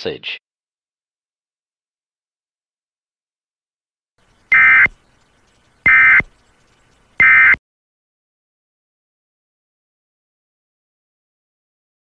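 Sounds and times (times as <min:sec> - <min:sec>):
harsh two-pitch digital data tones: 0:04.5 - 0:05.0, 0:05.8 - 0:06.3, 0:07.2 - 0:07.6.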